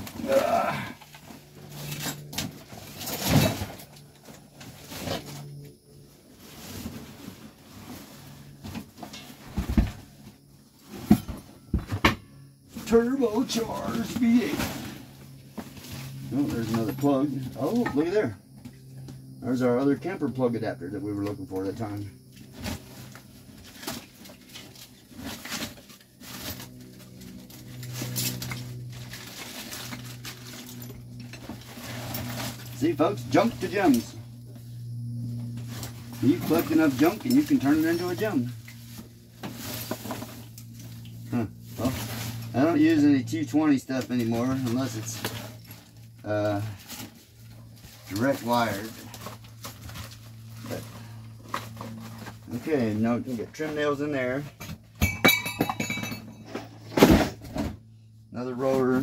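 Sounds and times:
objects clunking and knocking: 0.0s - 5.5s, 6.5s - 13.0s, 35.5s - 41.0s, 54.5s - 57.9s
steady low hum: 0.0s - 59.0s.

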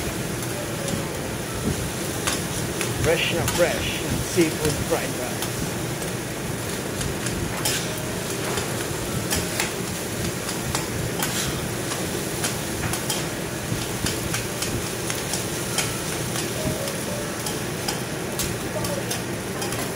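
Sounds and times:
steady sizzle: 0.0s - 19.9s
metal spatulas clacking on griddle: 7.6s - 9.8s, 10.4s - 16.6s, 17.4s - 19.9s.

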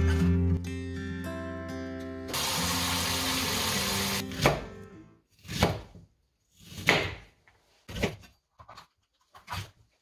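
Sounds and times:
knife cutting onion on cutting board: 4.2s - 8.3s.

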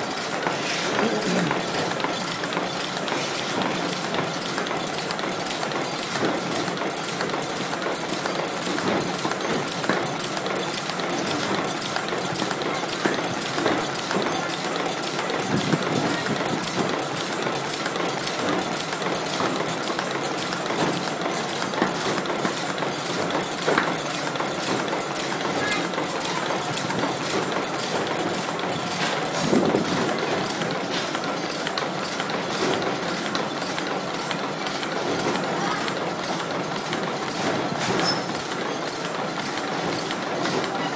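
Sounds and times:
machine running: 0.0s - 40.9s.

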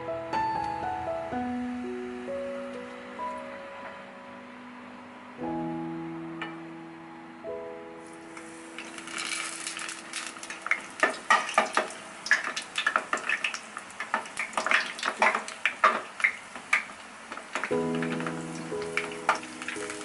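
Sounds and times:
food deep-frying in oil: 8.0s - 20.0s
oil crackling and popping: 8.3s - 20.0s.

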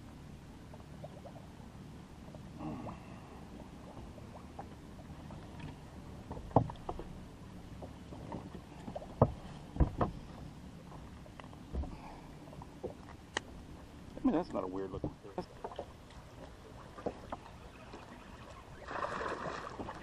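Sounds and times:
knocks and thumps on boat: 3.8s - 13.6s, 14.2s - 18.0s, 18.6s - 20.0s.

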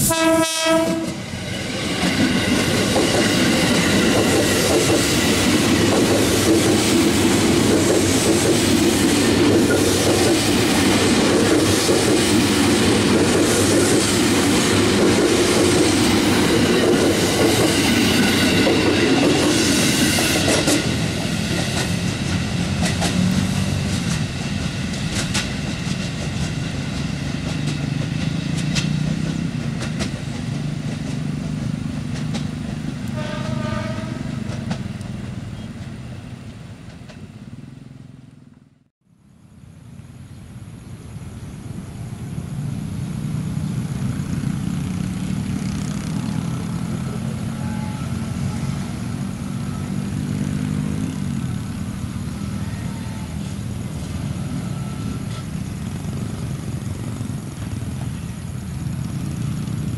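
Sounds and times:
train horn blast: 0.0s - 1.2s, 33.0s - 34.6s, 46.2s - 49.0s
train wheels clacking over rails: 0.0s - 36.2s, 36.8s - 37.6s, 44.0s - 59.9s.

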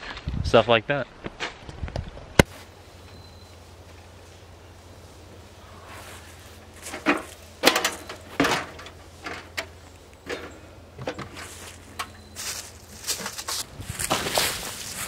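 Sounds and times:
steps on dry leaves: 3.6s - 7.6s, 11.4s - 15.0s
bags and case clunking: 6.2s - 15.0s.

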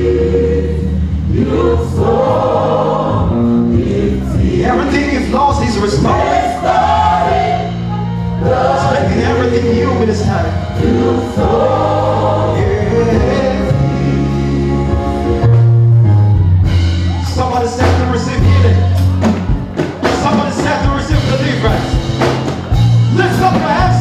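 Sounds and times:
choir singing: 0.0s - 15.5s.

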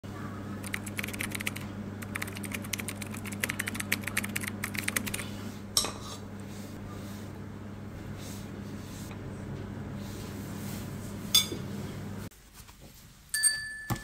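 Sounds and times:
steady low hum: 0.1s - 12.3s
keyboard typing clicks: 0.6s - 5.2s.

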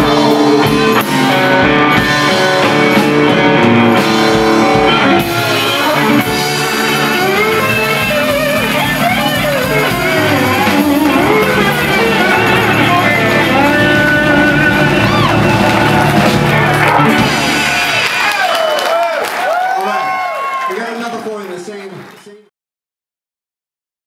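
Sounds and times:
slide guitar gliding lines: 0.0s - 18.0s
blues band playing: 0.0s - 19.6s.

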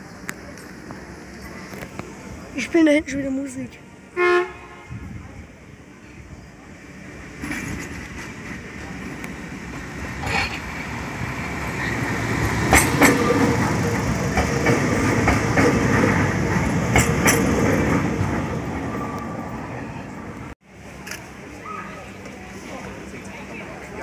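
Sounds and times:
train rumbling past: 0.0s - 24.0s
wheels clicking over rail joints: 7.4s - 19.3s.

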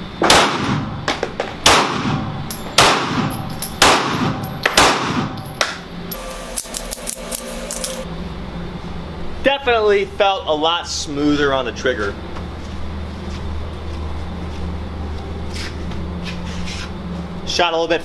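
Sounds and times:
pistol shots with echo: 0.2s - 0.9s, 1.6s - 5.4s.

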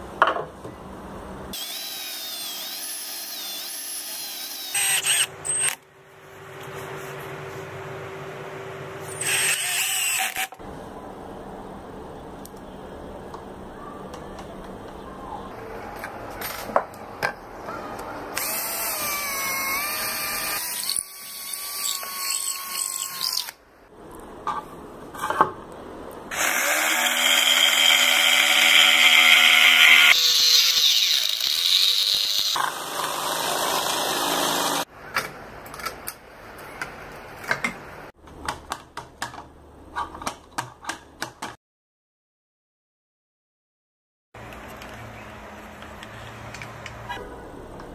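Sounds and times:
jigsaw motor running: 26.3s - 34.8s.

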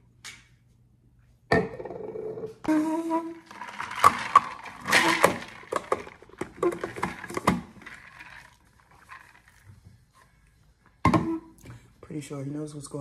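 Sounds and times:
objects clicking and knocking: 3.3s - 10.3s.

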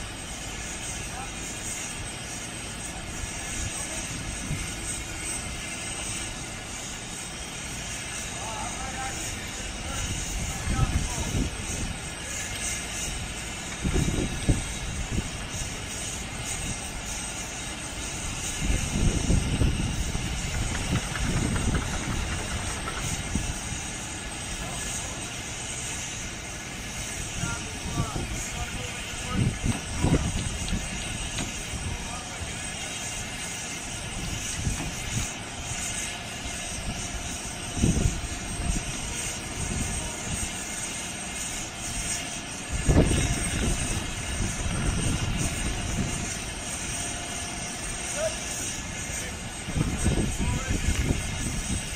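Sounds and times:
truck engine low rumble: 0.0s - 51.9s
heavy low rumbles: 18.0s - 32.6s.

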